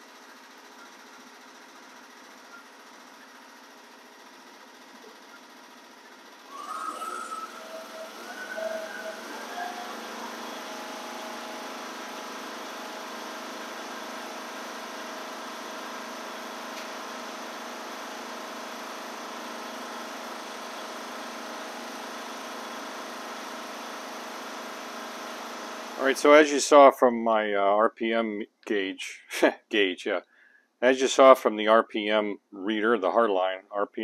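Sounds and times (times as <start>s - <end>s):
riding mower engine running: 0.0s - 26.6s.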